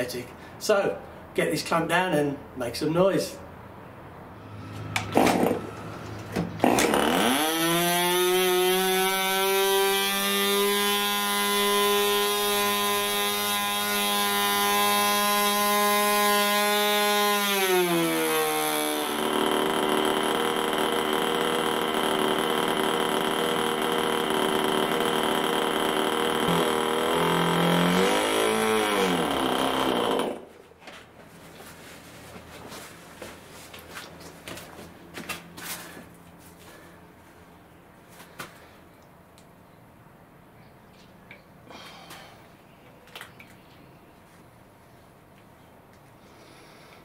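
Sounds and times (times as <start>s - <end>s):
model airplane engine running: 8.3s - 16.3s, 17.8s - 30.4s.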